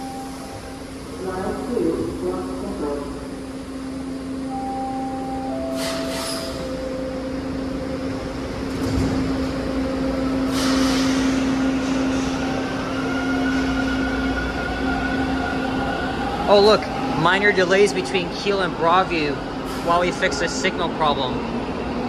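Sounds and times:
train door chime: 4.3 - 12.0
train doors closing thump: 8.6 - 9.6.

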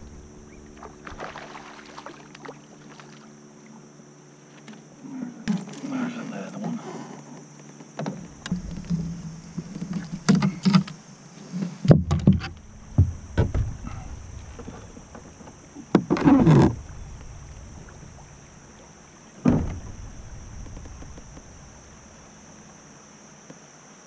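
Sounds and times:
knocks and thumps on plastic kayak: 11.8 - 18.5, 19.4 - 22.1.

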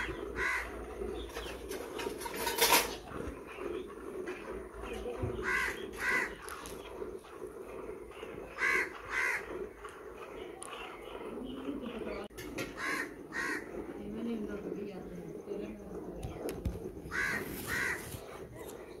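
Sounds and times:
crows cawing: 0.0 - 1.2, 5.3 - 6.8, 8.2 - 9.8, 12.6 - 13.9, 17.1 - 18.3.

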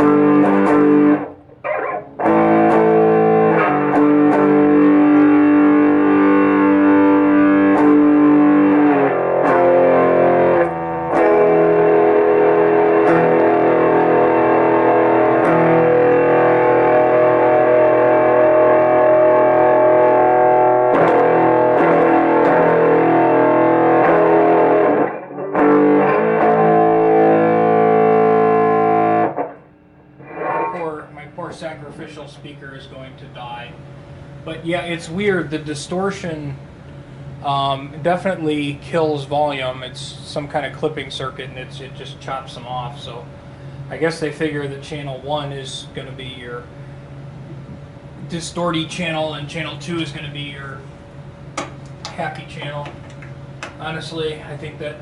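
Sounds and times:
distorted electric guitar chords: 0.0 - 32.0.

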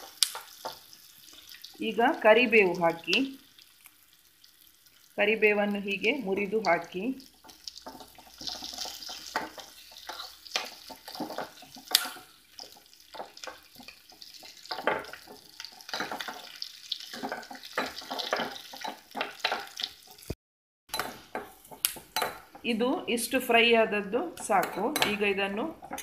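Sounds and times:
oil sizzling: 0.0 - 26.0
spoon scraping a frying pan: 7.4 - 20.3, 20.9 - 22.6.

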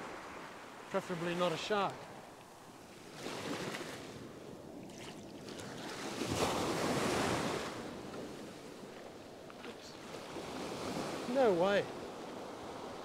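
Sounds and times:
ocean surf breaking: 0.0 - 8.9, 9.6 - 13.0.

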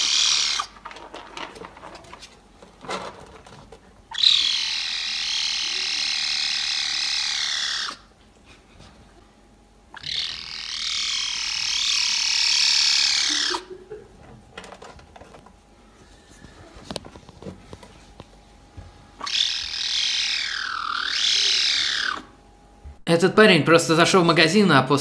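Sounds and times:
kitten high-pitched meow: 4.1 - 8.0, 10.0 - 13.6, 19.2 - 22.3.

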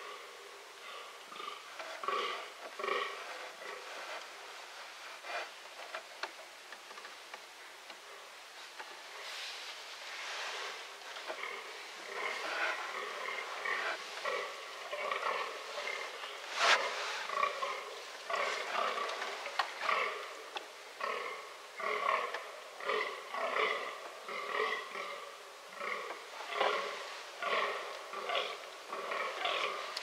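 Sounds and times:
deer grunting: 0.8 - 4.4, 10.3 - 30.0.

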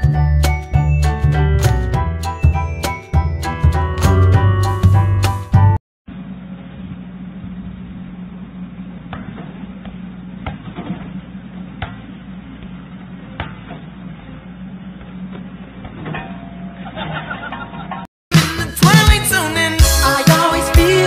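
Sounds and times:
music: 0.0 - 5.8, 18.3 - 21.0
excavator engine running: 0.1 - 18.0.

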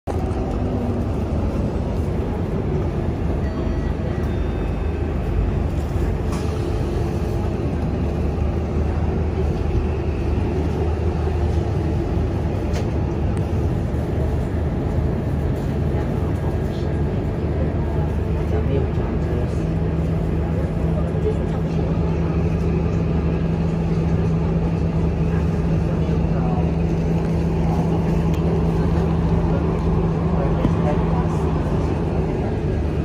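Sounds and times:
vehicle engine and tyres rumbling: 0.0 - 33.0.

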